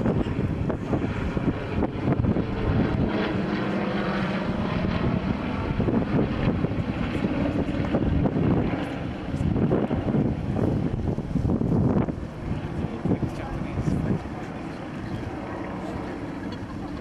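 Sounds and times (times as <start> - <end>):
propeller aircraft droning: 0.0 - 17.0.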